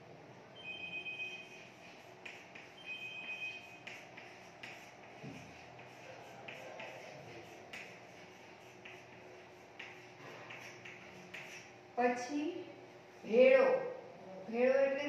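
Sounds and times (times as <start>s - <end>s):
chalk squeaking: 1.3s - 11.7s
chalk scratching on chalkboard: 1.4s - 11.8s.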